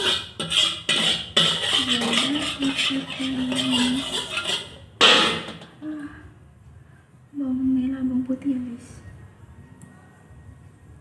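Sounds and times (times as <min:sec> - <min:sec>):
metal spatula scraping a wok: 0:00.0 - 0:05.8
loud metal clank: 0:05.0 - 0:05.8.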